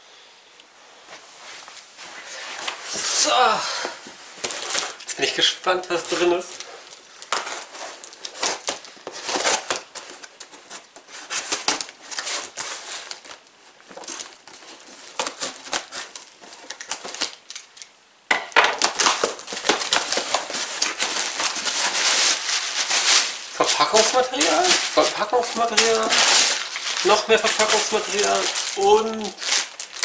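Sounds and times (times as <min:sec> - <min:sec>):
packing material crinkling: 0:02.2 - 0:30.0.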